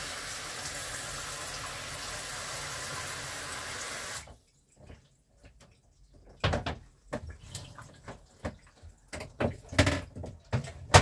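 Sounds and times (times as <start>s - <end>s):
plastic tub and lid clunking: 9.2s - 11.0s.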